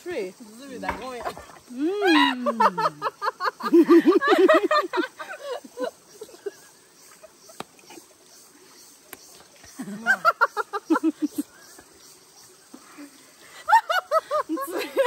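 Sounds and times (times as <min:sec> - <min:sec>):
women laughing: 0:01.8 - 0:08.1, 0:09.8 - 0:11.6, 0:13.5 - 0:15.0.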